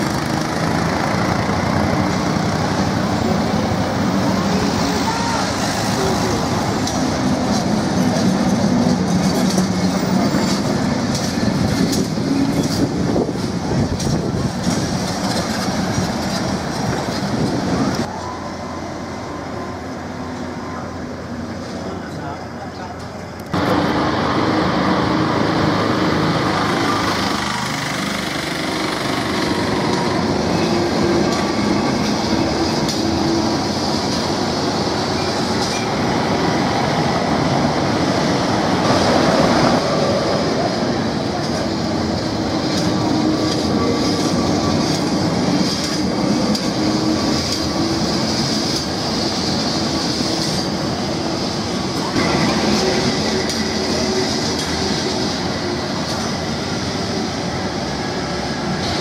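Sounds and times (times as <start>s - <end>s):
tram rumbling on rails: 0.0s - 59.0s
steel wheels squealing on track: 26.4s - 33.8s.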